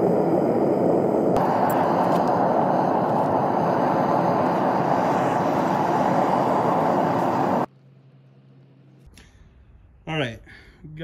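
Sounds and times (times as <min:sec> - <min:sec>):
furnace gas burner roaring: 0:00.0 - 0:07.7.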